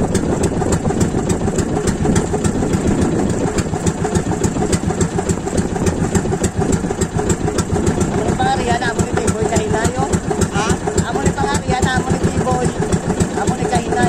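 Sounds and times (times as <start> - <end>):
boat engine idling: 0.0 - 14.0.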